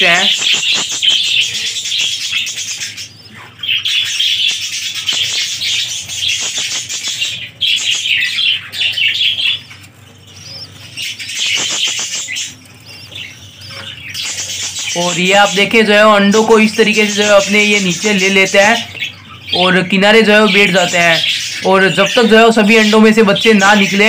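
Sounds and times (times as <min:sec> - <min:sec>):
budgies chattering: 0:00.0 - 0:24.0.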